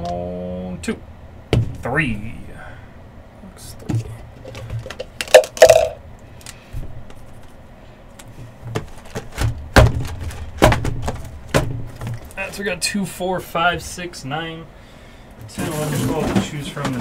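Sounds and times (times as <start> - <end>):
die rattling in plastic cup: 4.4 - 6.0
cardboard boxes thudding: 8.7 - 12.3.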